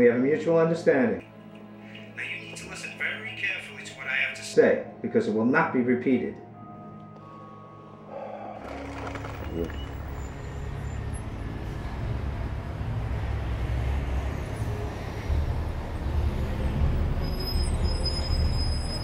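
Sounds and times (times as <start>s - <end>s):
car and road traffic rumble: 8.6s - 19.0s.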